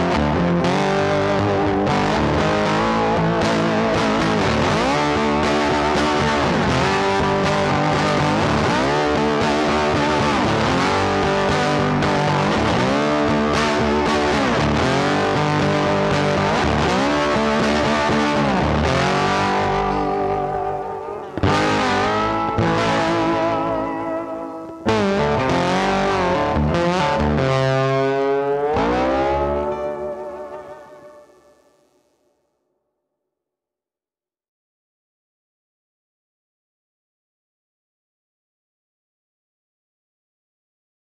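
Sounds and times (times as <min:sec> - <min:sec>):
distorted electric guitar music: 0:00.0 - 0:32.4.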